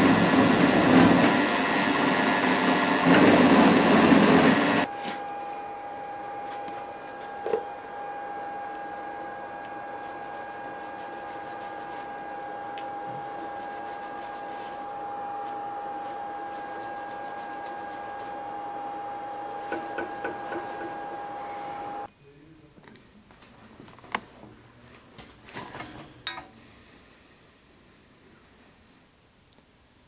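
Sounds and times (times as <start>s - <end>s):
workshop machine humming: 0.0s - 22.1s.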